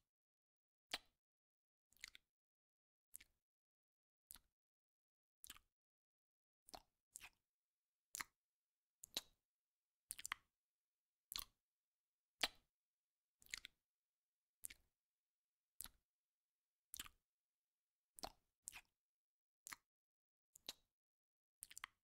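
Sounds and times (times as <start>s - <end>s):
snail eating wet clicks: 2.0s - 2.2s, 3.1s - 3.4s, 5.4s - 5.7s, 6.7s - 7.4s, 8.1s - 8.4s, 9.0s - 9.4s, 10.1s - 10.5s, 11.3s - 11.6s, 13.4s - 13.8s, 14.6s - 14.8s, 15.8s - 16.0s, 16.9s - 17.2s, 18.2s - 18.9s, 19.6s - 19.9s, 20.6s - 20.9s, 21.6s - 22.0s.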